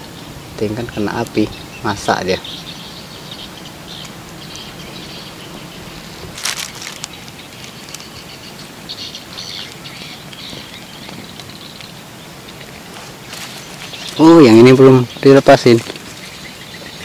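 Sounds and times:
birds and insects chirping: 0.0s - 17.0s
handling rustle: 6.0s - 8.3s, 12.6s - 16.4s.

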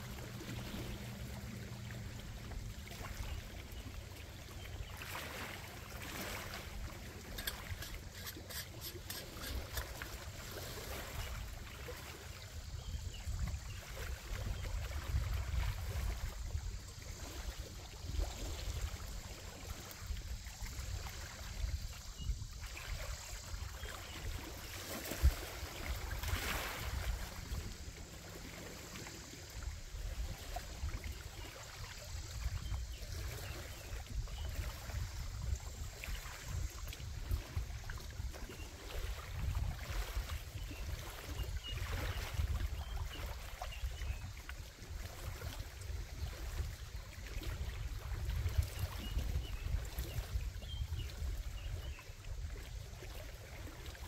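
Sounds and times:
waves lapping on rocky shore: 0.0s - 12.6s, 23.1s - 31.2s
wind on microphone: 12.6s - 27.9s, 29.5s - 44.2s, 45.0s - 52.6s.

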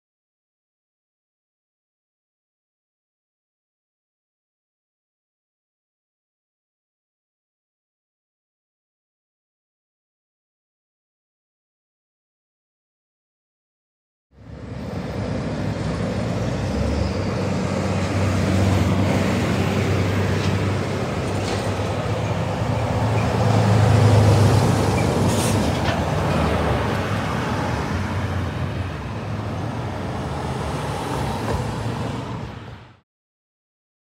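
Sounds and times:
truck engines droning: 14.4s - 33.0s
tyre noise from passing vehicles: 14.4s - 33.0s.

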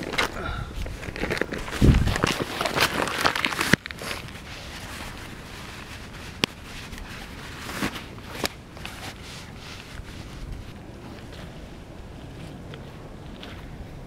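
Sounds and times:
nylon fabric rustling and crinkling: 0.0s - 13.6s.

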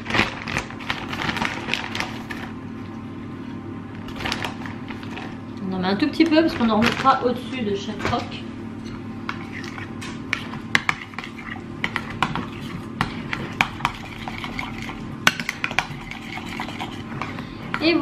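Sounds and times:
utensil stirring thick mixture: 9.2s - 18.0s.

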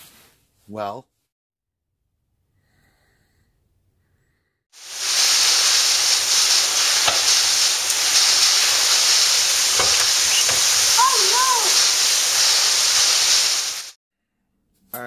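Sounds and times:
heavy rain: 4.8s - 14.0s.

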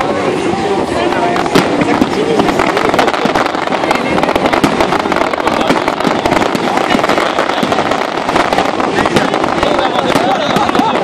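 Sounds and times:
fireworks crackling and popping: 0.0s - 11.0s.

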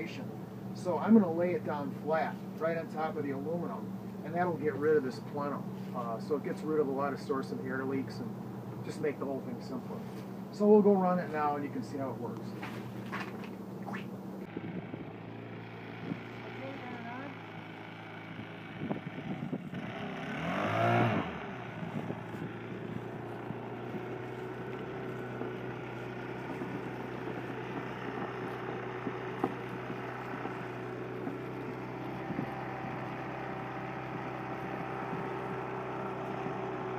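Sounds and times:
leaf blower engine running: 0.0s - 13.7s, 14.4s - 36.9s.

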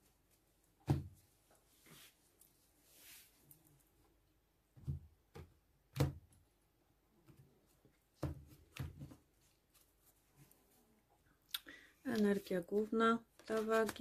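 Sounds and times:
cards rustling: 12.1s - 14.0s.

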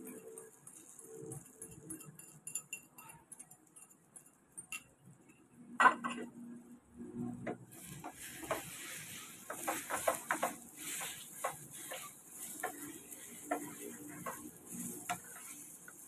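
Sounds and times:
spatula scraping and knocking pan: 7.4s - 16.0s
food sizzling in a frying pan: 7.6s - 16.0s.

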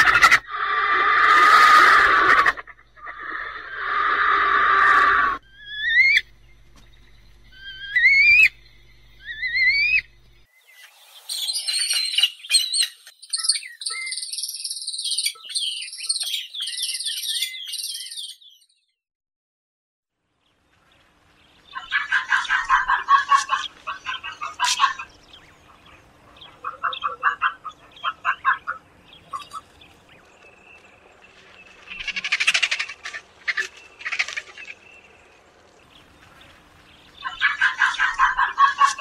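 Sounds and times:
high thin chirping bird calls: 7.5s - 18.6s, 21.6s - 35.2s.

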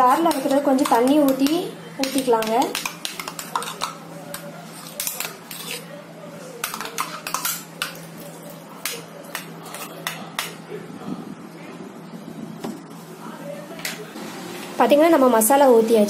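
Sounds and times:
spoon scraping mixer jar: 0.1s - 5.9s.

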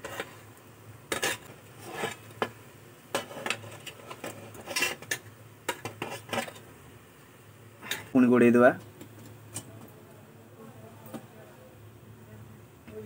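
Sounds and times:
metal spatula scraping metal plate: 0.0s - 0.4s, 1.1s - 2.5s, 3.1s - 6.6s.

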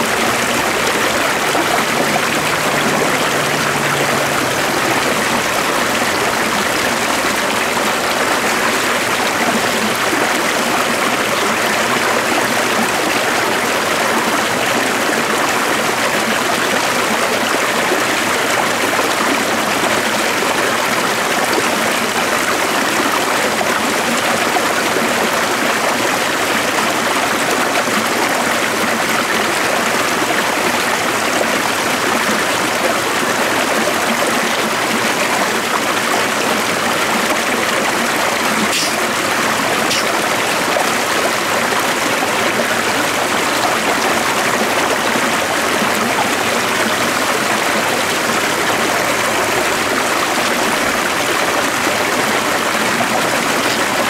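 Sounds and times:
stream water flowing: 0.0s - 54.0s.

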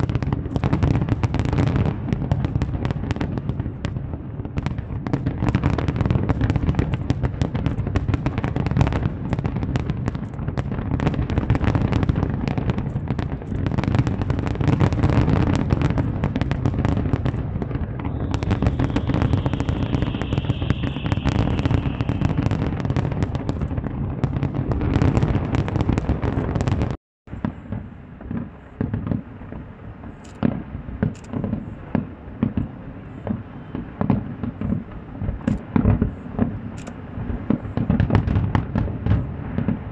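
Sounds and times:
fireworks bangs and crackling: 0.0s - 39.9s
fireworks hiss: 15.4s - 25.1s.

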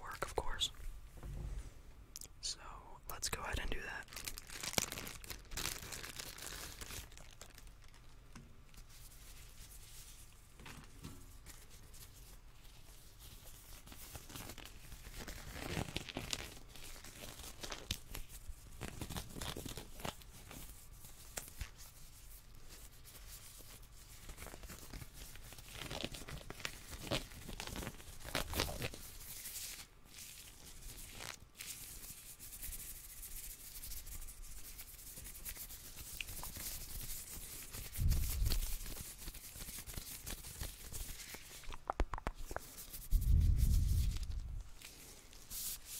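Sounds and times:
low thump: 1.2s - 1.8s
plastic gloves crinkling: 3.3s - 45.9s.

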